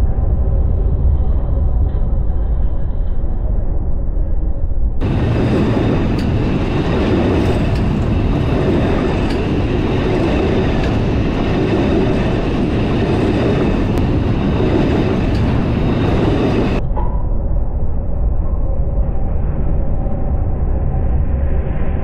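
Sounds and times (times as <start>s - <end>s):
train wheels rumbling on rails: 5.0s - 16.8s.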